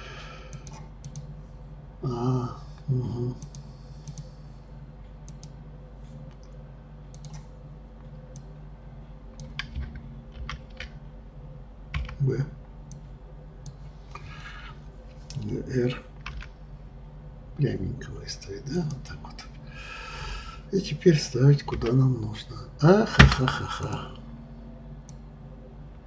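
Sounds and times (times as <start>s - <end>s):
low steady hum: 0.0s - 26.0s
keyboard and mouse clicks: 0.5s - 1.3s, 3.4s - 4.3s, 5.2s - 5.6s, 6.3s - 7.5s, 9.3s - 11.0s, 11.9s - 12.2s
person making short vocal sounds: 2.0s - 3.5s.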